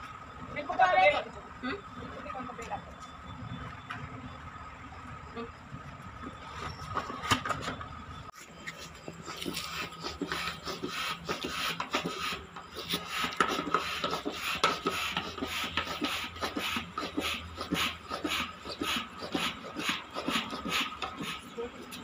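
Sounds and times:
foot pump puffing air: 0:08.7 - 0:22.0.

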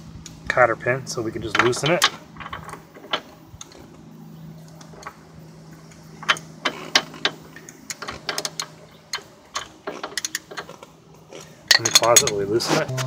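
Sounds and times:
ratchet wrench clicking: 0:06.2 - 0:10.7.

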